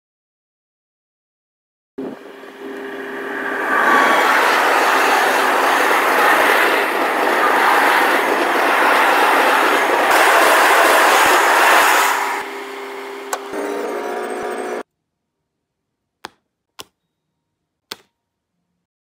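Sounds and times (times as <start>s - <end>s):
train wheels on rails: 2.2s - 14.8s.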